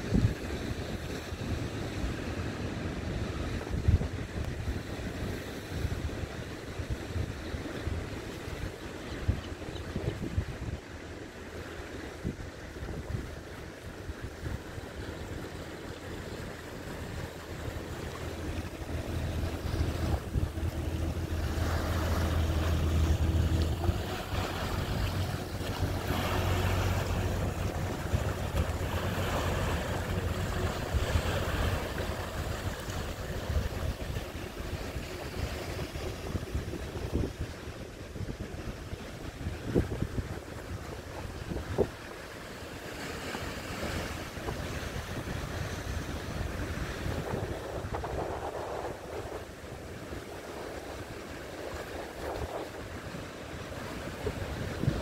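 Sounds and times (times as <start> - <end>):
boat engine running: 0.0 - 55.0
water rushing and churning: 0.0 - 55.0
waves washing against jetty: 0.0 - 55.0
wind on microphone: 0.0 - 55.0.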